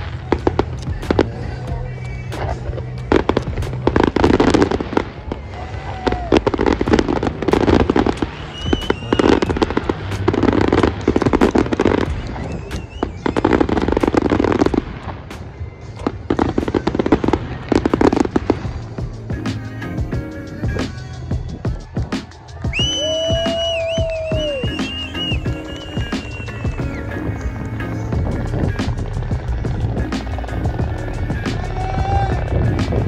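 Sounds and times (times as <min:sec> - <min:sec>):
fireworks bursting with bangs: 0:00.0 - 0:33.0.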